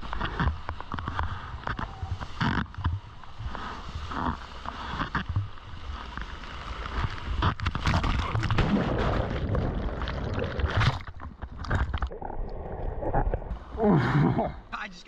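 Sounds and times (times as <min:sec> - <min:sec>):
muffled churning underwater rush: 0:01.1 - 0:14.6
water rushing past surfboard: 0:05.9 - 0:14.2.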